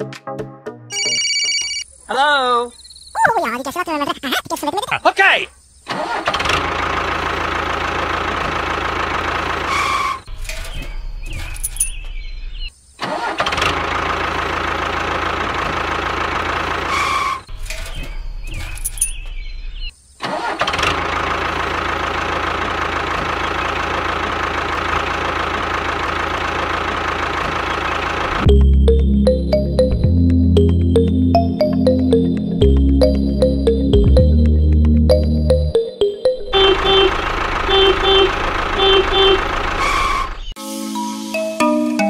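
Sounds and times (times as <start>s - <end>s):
vehicle engine running: 6.2s - 12.3s, 13.5s - 19.8s, 20.8s - 40.6s.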